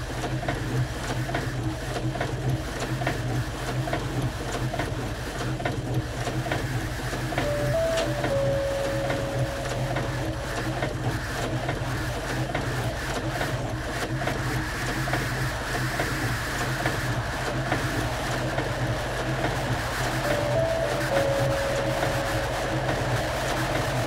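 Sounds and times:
held musical tone: 0:07.4 - 0:11.3, 0:20.2 - 0:24.0.

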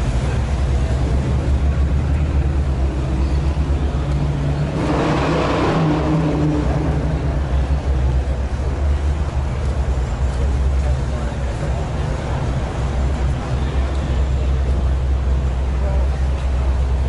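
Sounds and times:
car engines humming: 0:00.0 - 0:17.0
car driving past: 0:03.1 - 0:07.9.

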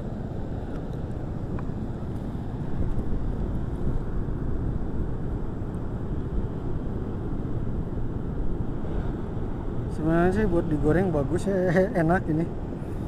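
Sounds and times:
distant surf breaking: 0:00.0 - 0:13.0
wind buffeting microphone: 0:00.0 - 0:13.0.

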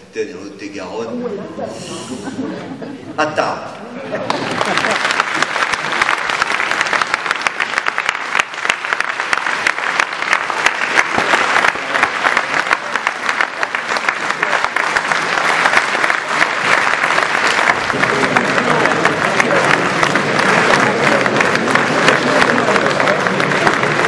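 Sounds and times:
murmur of voices: 0:00.0 - 0:04.8, 0:11.0 - 0:24.0
crowd applauding: 0:04.2 - 0:24.0.

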